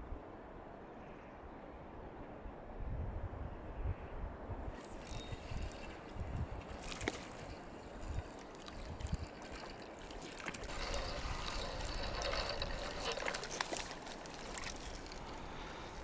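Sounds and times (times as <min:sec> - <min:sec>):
water splashing and trickling: 0:04.8 - 0:16.0.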